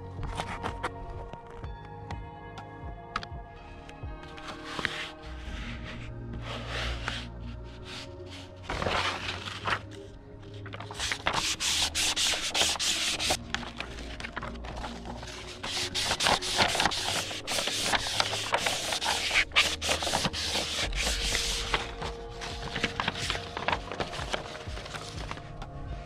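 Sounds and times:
paper backing peeling off: 10.6 - 25.4
hands rubbing on sheet: 11.0 - 14.2, 14.9 - 23.7.

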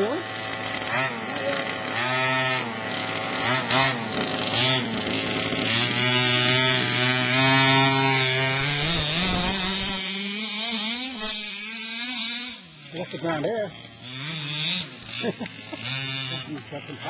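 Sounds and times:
small two-stroke engine revving: 0.0 - 17.0.

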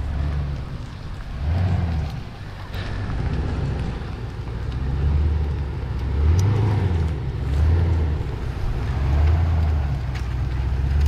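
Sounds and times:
engine revving in surges: 0.0 - 11.0.

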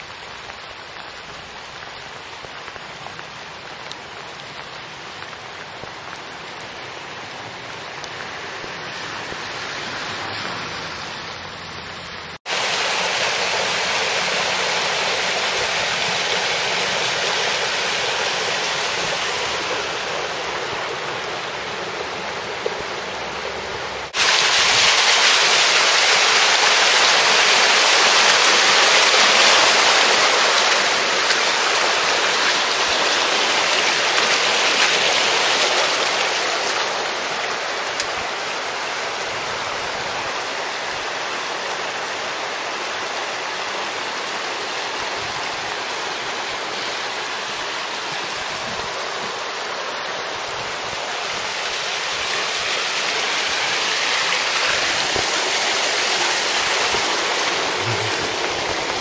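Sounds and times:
floodwater rushing along a street: 0.0 - 59.0.

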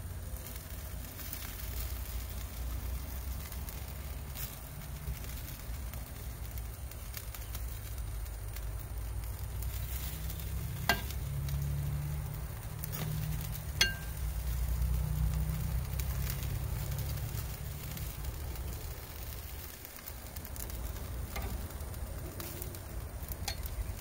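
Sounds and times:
chicken wings sizzling on grill: 0.0 - 24.0
metal tongs clinking on grate: 10.8 - 11.2, 12.8 - 14.3, 21.3 - 21.7, 23.4 - 23.8.

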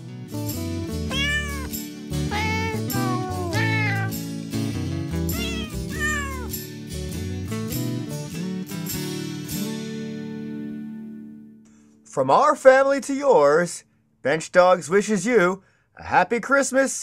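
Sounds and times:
musical backing: 0.0 - 10.7
cat meows set to music: 0.9 - 6.7.

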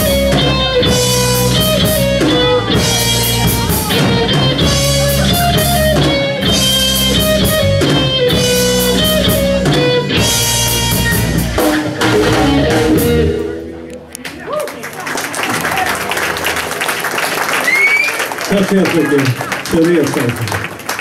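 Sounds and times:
drum kit: 0.0 - 14.5
electric guitar: 0.0 - 14.8.

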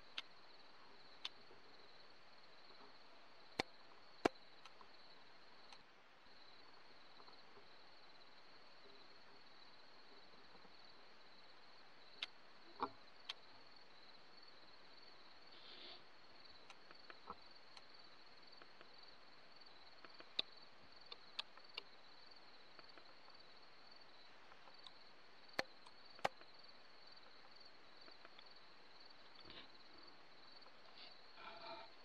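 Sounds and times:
cricket trill: 0.0 - 32.0
sharp clicks: 25.6 - 26.6.

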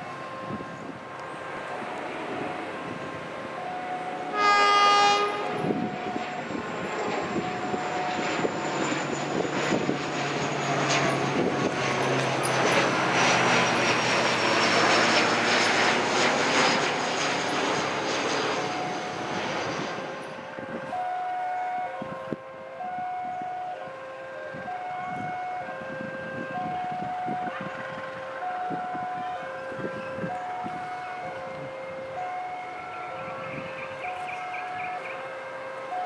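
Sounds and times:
train horn blast: 0.0 - 8.5
train engine drone: 0.0 - 36.0.

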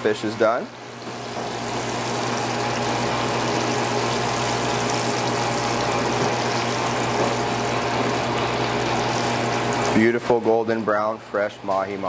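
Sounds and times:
oil sizzling in frying pan: 0.8 - 10.1.

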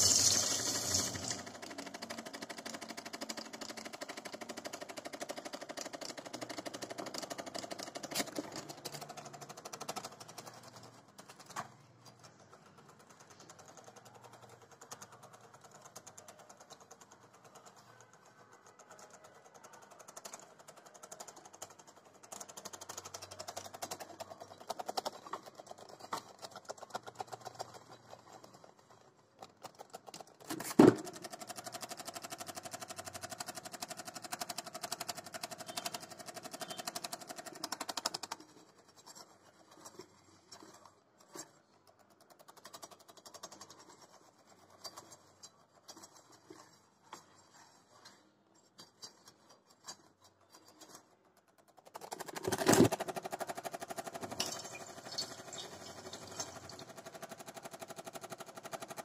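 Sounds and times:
small electric motor humming: 0.0 - 1.5.

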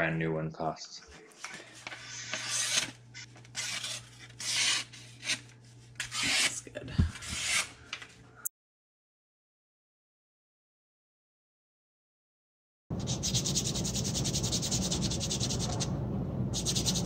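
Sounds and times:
knife slicing paper: 1.9 - 3.0.

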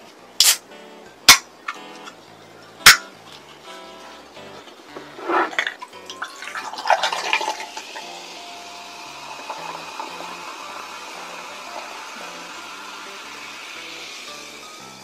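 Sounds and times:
ice clinking in a glass: 5.5 - 8.2
carbonation fizzing: 5.5 - 15.0
soda pouring into a glass: 5.5 - 15.0.

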